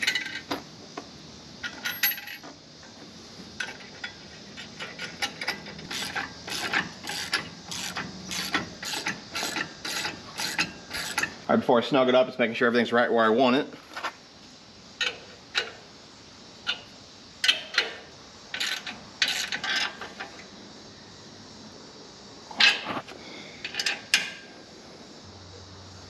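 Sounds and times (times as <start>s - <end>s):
wrench clinking on metal: 0.0s - 0.5s, 1.6s - 2.4s.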